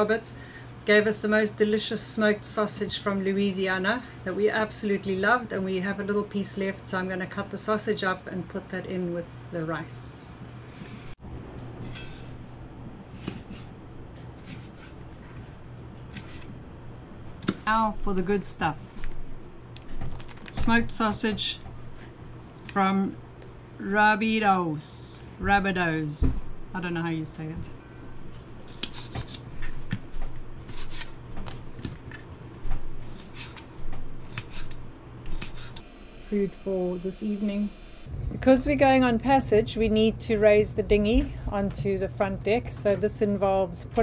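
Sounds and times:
steady low hum: 0.0 - 44.0
food preparation clicks and rustles: 19.8 - 21.2
knife slicing sausage: 33.1 - 35.8.

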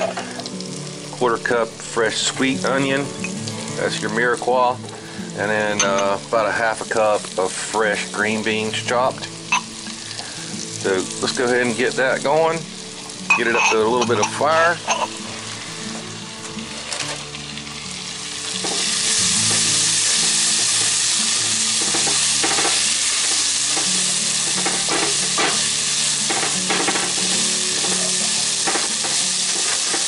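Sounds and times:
vegetables sizzling in oil: 0.0 - 30.0
tongs scraping pot: 13.3 - 15.2, 26.3 - 30.0.

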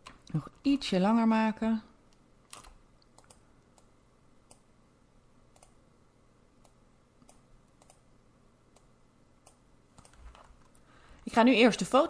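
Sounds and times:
computer mouse clicks: 2.1 - 4.7, 5.5 - 5.8, 6.6 - 8.0, 8.7 - 10.9.

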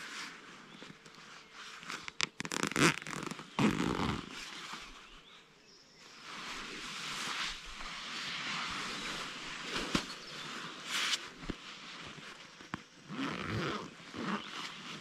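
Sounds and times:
sleeping bag rustling: 0.0 - 5.4, 6.1 - 15.0.

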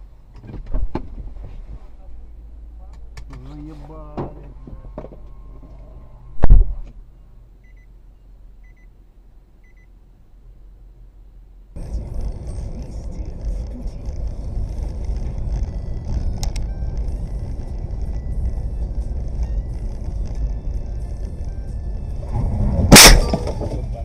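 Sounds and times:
faint short beeps: 7.1 - 8.9, 9.6 - 9.9
car driving rumble from inside: 11.7 - 24.0
loud bang: 22.2 - 24.0.

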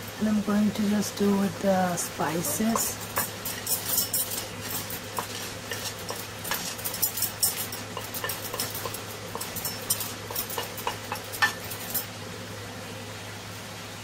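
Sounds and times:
metal spoon scraping a dish: 2.7 - 12.0.

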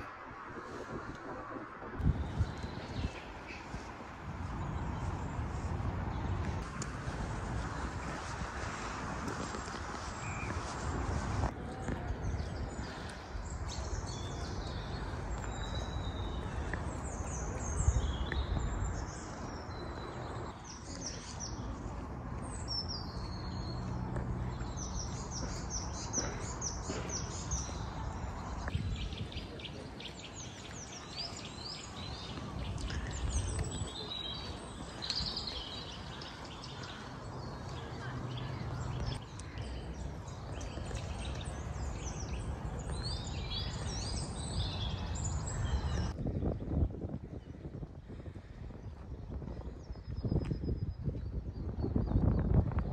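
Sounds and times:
wind rumble on microphone: 0.0 - 52.9
songbirds chirping and singing: 11.7 - 46.6.

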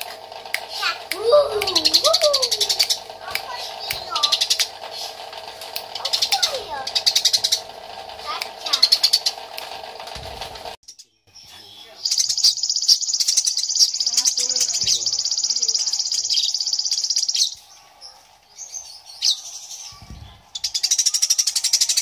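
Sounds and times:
sparrow chirping chatter: 0.0 - 22.0.

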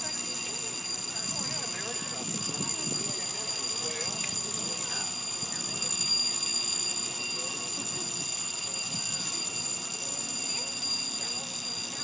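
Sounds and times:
high-pitched tonal whine: 0.0 - 12.0.

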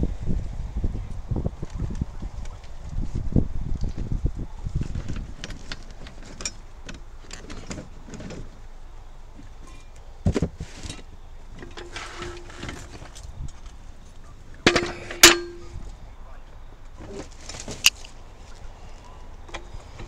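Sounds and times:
tools knocking and rattling: 9.6 - 13.2, 14.6 - 15.8
metal clank with ring: 14.7 - 15.8.

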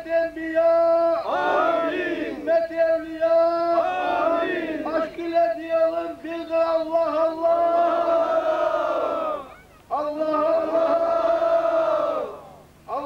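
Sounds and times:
men chanting in unison: 0.6 - 2.5, 3.3 - 5.4, 7.4 - 9.5, 10.1 - 12.6.

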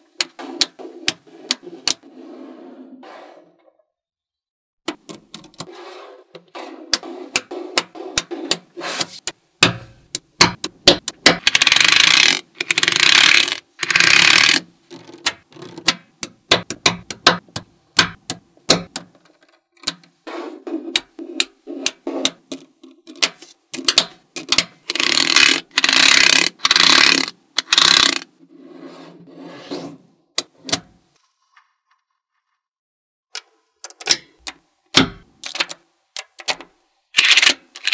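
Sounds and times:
magnetic balls clicking together: 9.2 - 20.1, 21.0 - 28.3
balls rattling and rolling: 10.5 - 21.2, 22.0 - 28.4.

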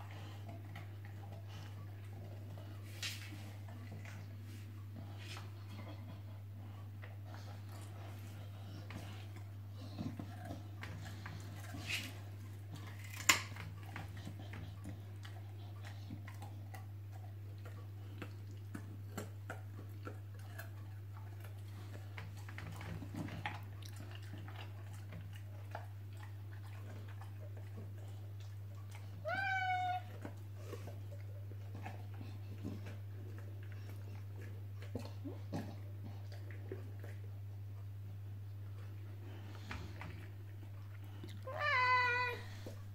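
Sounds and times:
cat meowing: 29.2 - 30.1, 41.4 - 42.5.

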